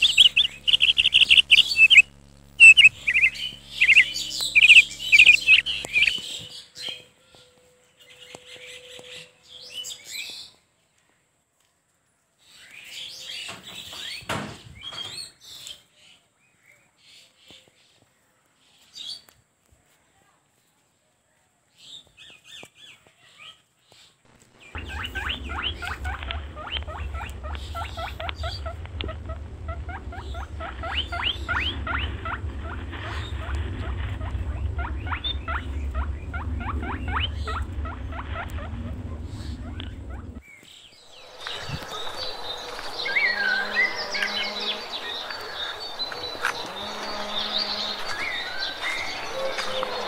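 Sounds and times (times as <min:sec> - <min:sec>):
steady low hum: 0:00.0 - 0:06.5, 0:24.3 - 0:50.0
high-pitched chirping calls: 0:00.0 - 0:07.1, 0:24.6 - 0:40.4, 0:41.0 - 0:50.0.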